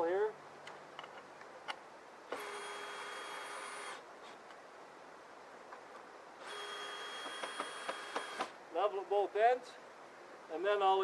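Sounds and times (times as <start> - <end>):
power drill whining: 2.3 - 4.0, 6.4 - 8.6.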